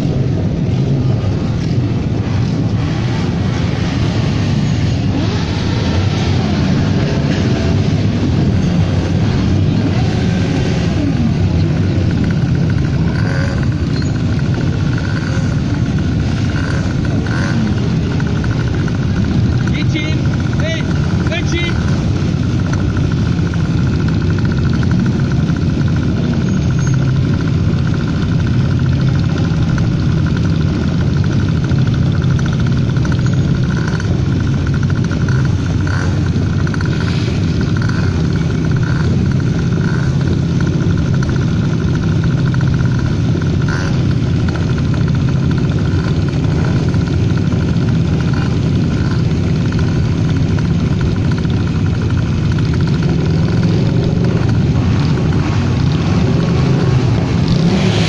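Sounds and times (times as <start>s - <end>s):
motorcycle engines droning: 0.0s - 58.0s.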